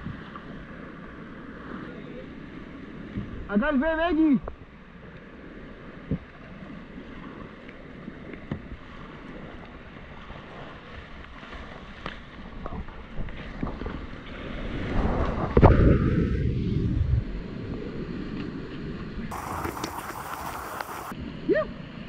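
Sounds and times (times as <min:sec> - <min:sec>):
paddle knocks and splashes: 0:08.3 - 0:15.8, 0:19.3 - 0:21.1
whitewater rapids rushing: 0:19.3 - 0:21.1.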